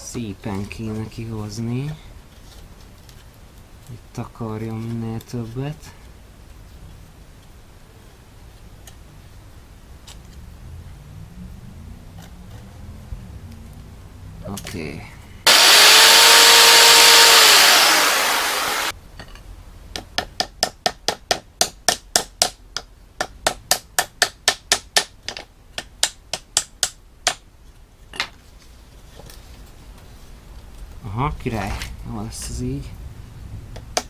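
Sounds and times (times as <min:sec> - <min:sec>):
loud steady hiss: 0:15.4 - 0:19.0
hammer tapping nails into wood: 0:20.0 - 0:27.4.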